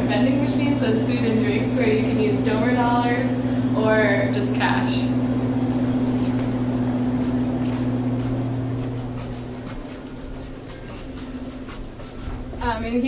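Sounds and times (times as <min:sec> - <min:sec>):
vending machines humming: 0:00.0 - 0:13.0
faint footsteps: 0:04.8 - 0:13.0.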